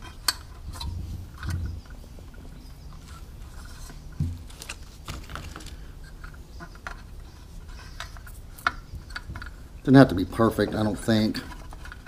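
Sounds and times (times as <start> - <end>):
led strip clicks and rustles: 0.0 - 9.6.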